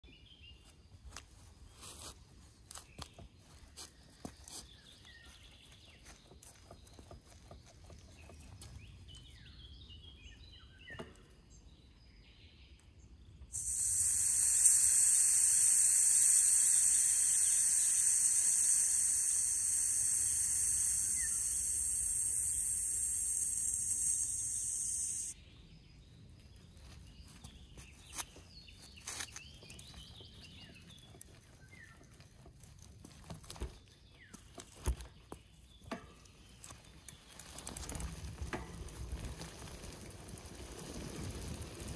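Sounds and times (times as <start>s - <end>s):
air hissing from tyre valve: 13.5s - 25.4s.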